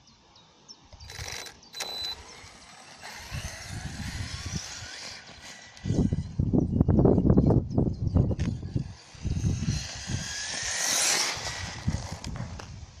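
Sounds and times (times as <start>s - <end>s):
tyres on gravel: 1.0s - 6.4s, 8.4s - 13.0s
rc truck electric motor whining: 1.0s - 6.7s, 8.4s - 13.0s
wind buffeting microphone: 2.4s - 13.0s.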